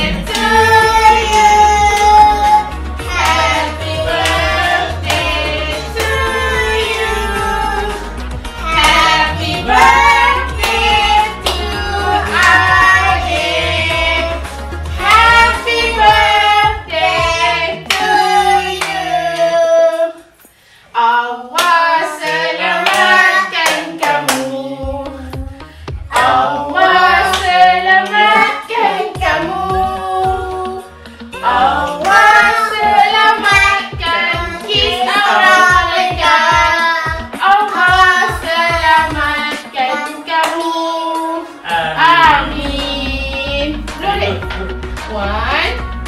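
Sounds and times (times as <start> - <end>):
family singing together: 0.0 - 45.9
hand-clapping in time: 0.2 - 0.6, 3.0 - 6.3, 21.6 - 24.6.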